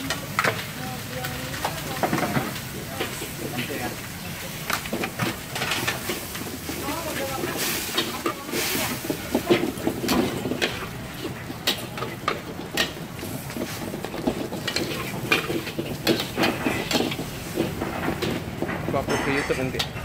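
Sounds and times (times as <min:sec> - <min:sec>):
sizzling hiss: 0:00.0 - 0:11.4
spatula scraping a wok: 0:01.8 - 0:20.0.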